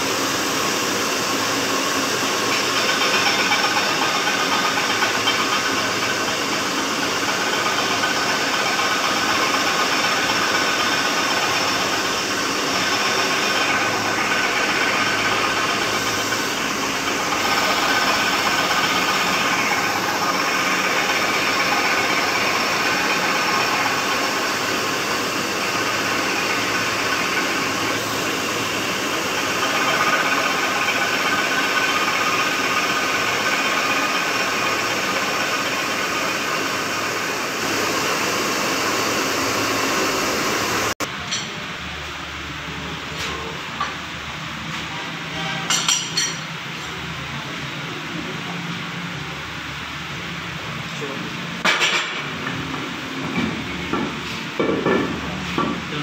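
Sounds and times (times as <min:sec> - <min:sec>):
loud grinding hiss: 0:00.0 - 0:41.1
machine motor whirring: 0:00.2 - 0:41.0.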